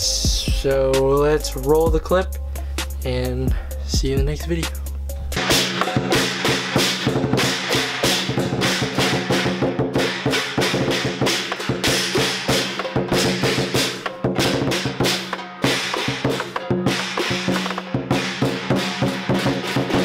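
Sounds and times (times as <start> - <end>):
barrel drum beaten fast: 5.3 - 20.0.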